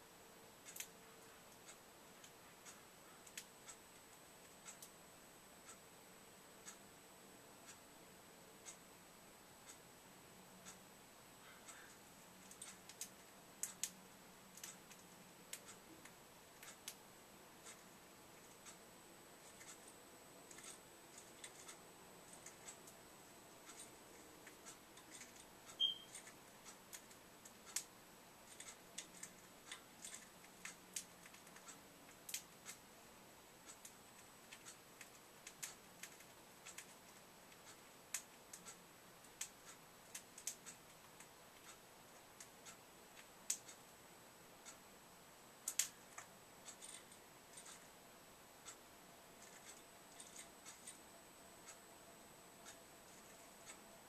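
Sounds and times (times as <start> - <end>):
bird clicking and tapping in cage: 23.7 - 27.9, 33.8 - 37.0, 39.4 - 41.2
short high bird chirp: 25.8 - 26.1.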